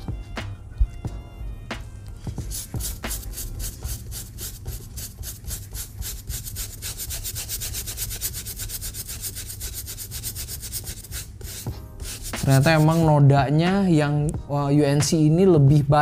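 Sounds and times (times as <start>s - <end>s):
brush scrubbing a sneaker: 2.4s - 13.1s.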